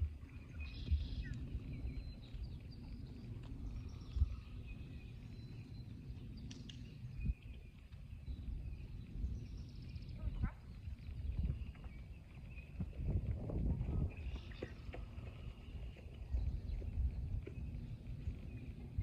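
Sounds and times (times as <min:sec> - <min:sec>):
wind on microphone: 0:00.0 - 0:19.0.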